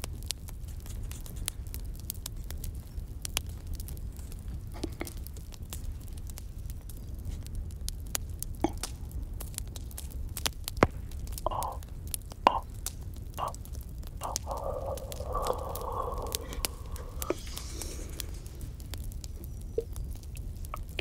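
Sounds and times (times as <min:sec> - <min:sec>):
campfire crackling and popping: 0:00.0 - 0:21.0
soft puff of breath: 0:14.2 - 0:18.7.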